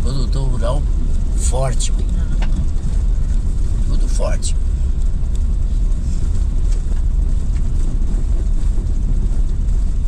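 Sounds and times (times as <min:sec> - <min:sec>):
car tyres and engine rumbling: 0:00.0 - 0:10.0.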